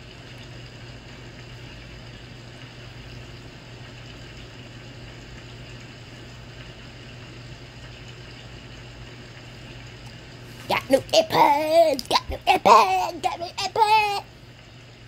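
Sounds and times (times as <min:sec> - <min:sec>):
appliance hum: 0:00.0 - 0:15.0.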